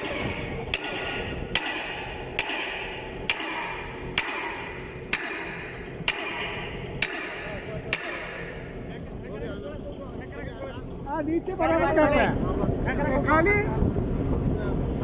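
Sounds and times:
hammer blows on steel: 0.0 - 8.8.

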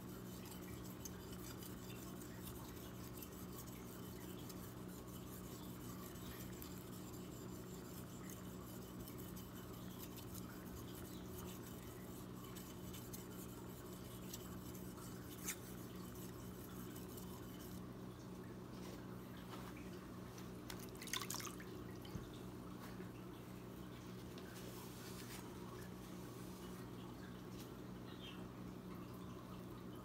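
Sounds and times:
steady low hum: 0.0 - 30.0
knife scraping on whetstone: 0.4 - 17.8.

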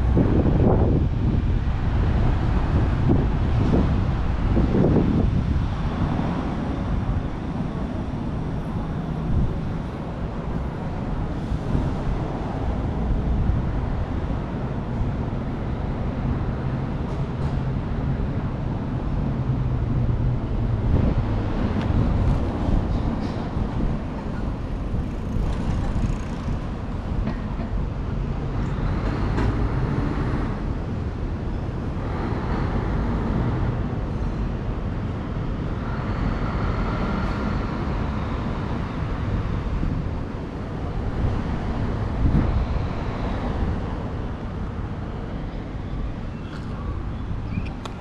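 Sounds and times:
road traffic rumble: 0.0 - 48.0.

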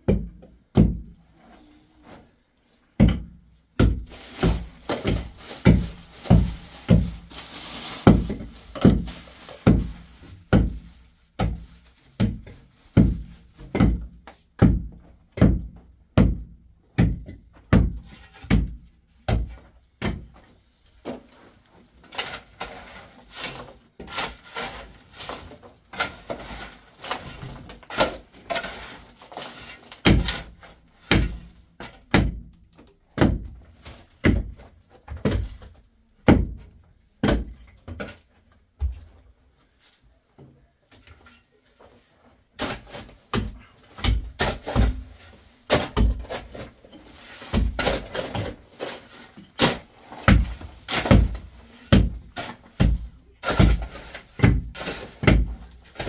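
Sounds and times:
digging tool striking earth and stone: 3.0 - 7.1, 25.9 - 32.5, 42.6 - 45.1, 45.7 - 46.7, 47.5 - 49.0, 49.6 - 56.0.

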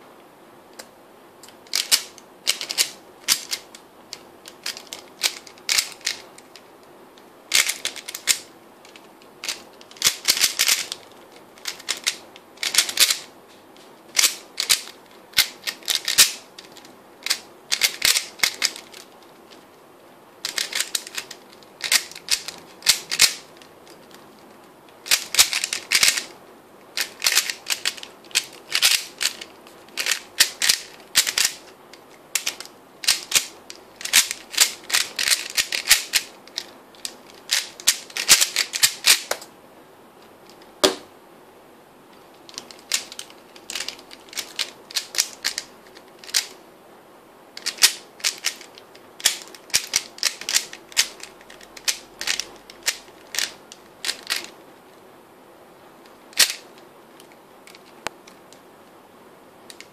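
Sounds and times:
plastic cube clicking: 4.4 - 6.2, 7.5 - 8.4, 9.4 - 11.0, 14.2 - 19.1, 20.4 - 24.2, 25.0 - 26.3, 27.0 - 31.6, 32.4 - 39.4, 47.6 - 54.5, 56.4 - 56.6.

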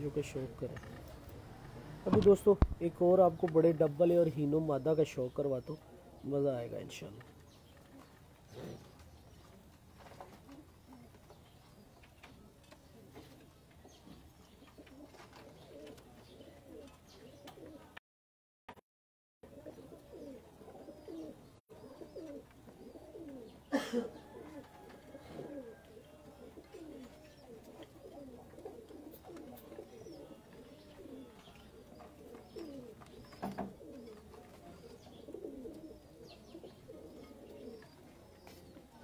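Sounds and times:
pigeons cooing: 7.5 - 18.0, 19.4 - 39.0.

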